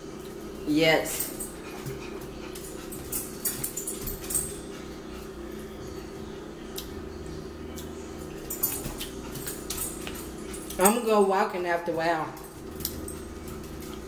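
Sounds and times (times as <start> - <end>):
low hum: 0.0 - 14.0
forks clicking on plates: 12.6 - 14.0.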